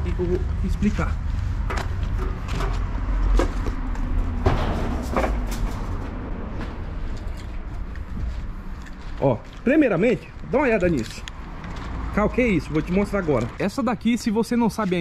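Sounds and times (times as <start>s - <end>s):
steady low rumble: 0.0s - 10.6s
footsteps on dirt and rubble: 0.6s - 15.0s.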